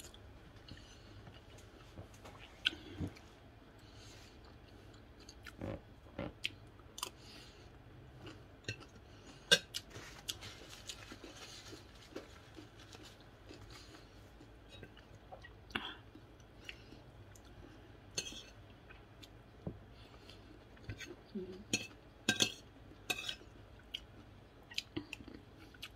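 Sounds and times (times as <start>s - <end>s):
chewing and mouth sounds: 0.0s - 3.3s.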